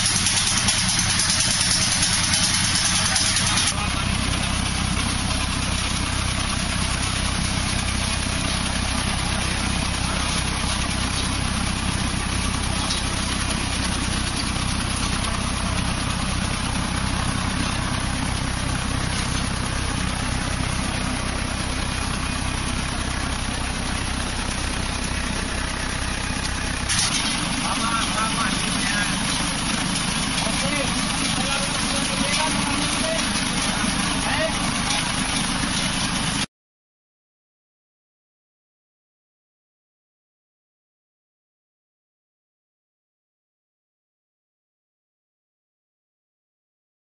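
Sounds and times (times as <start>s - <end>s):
sickle bar trimmer cutting bushes: 0.0s - 3.8s, 26.9s - 36.0s
tractor engine running: 0.0s - 36.5s.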